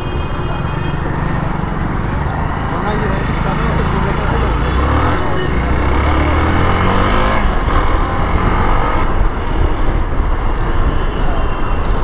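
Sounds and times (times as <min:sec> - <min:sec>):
motorcycle engine running: 0:00.7 - 0:10.2.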